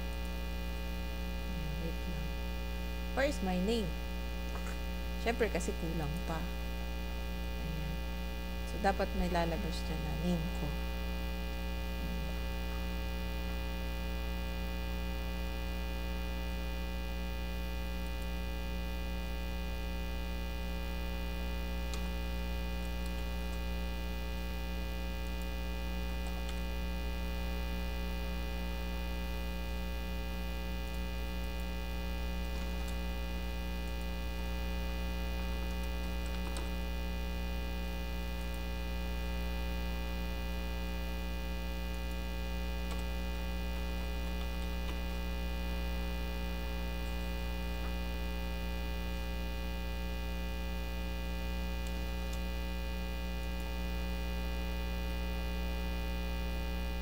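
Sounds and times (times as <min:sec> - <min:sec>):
electrical mains hum: 0:00.0 - 0:57.0
keys typing clicks: 0:35.6 - 0:36.8.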